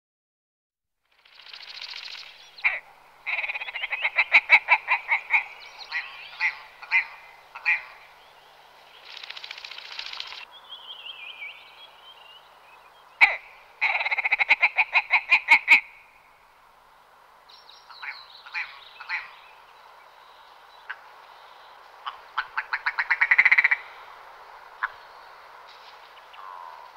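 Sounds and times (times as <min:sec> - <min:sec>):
bird calling rapid notes: 0:09.0 - 0:10.5, 0:22.0 - 0:24.1.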